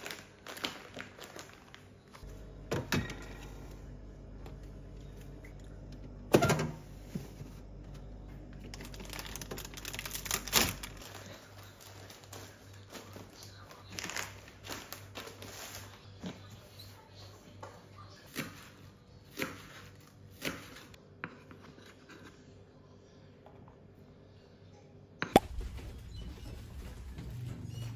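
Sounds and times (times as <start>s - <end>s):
plastic packets crinkling: 0.0s - 2.2s, 8.6s - 16.0s
low hum: 2.2s - 12.6s, 25.3s - 27.9s.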